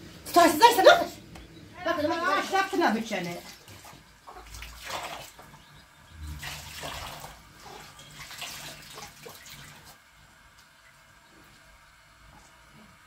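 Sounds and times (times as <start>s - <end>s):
water splashing into basin: 2.4s - 10.0s.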